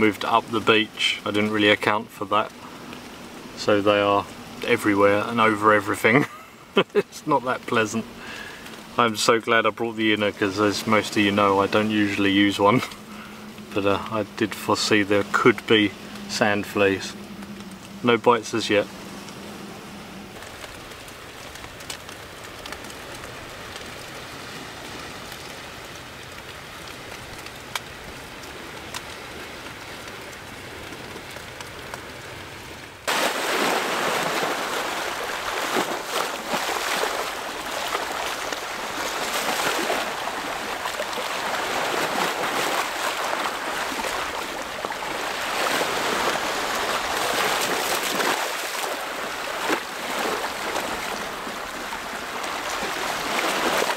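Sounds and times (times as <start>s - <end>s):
quiet steady hiss: 0.0s - 53.9s
waves splashing over rocks: 0.0s - 53.9s
faint light ticks: 25.2s - 32.0s.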